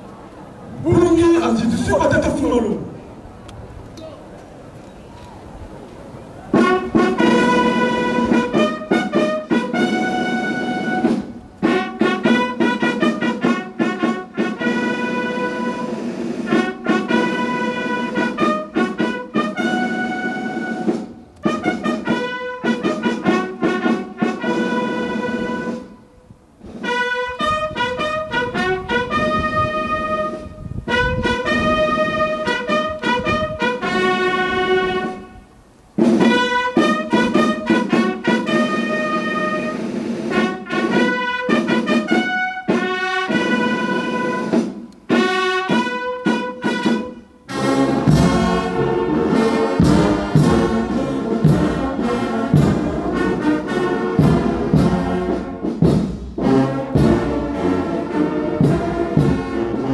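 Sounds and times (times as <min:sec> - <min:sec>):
brass band playing long notes: 0:00.7 - 0:03.3, 0:06.3 - 0:59.9.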